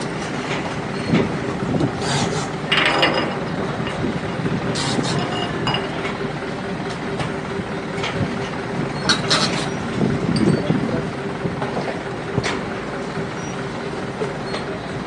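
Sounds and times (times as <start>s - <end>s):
boat engine running steadily: 0.0s - 15.0s.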